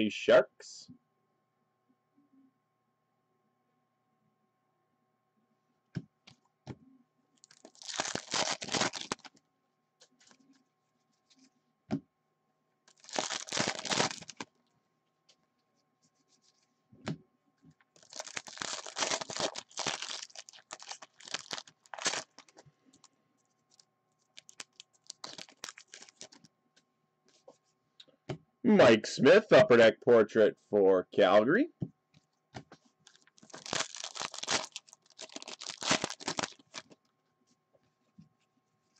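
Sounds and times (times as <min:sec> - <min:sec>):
trading cards rustling: 0:07.4 - 0:09.4, 0:12.9 - 0:14.5, 0:18.0 - 0:23.1, 0:23.7 - 0:26.5, 0:33.1 - 0:37.0.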